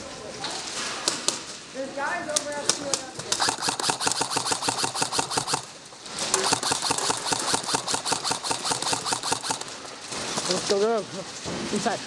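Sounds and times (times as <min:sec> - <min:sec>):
airsoft rifle firing full auto: 0:03.3 - 0:09.9.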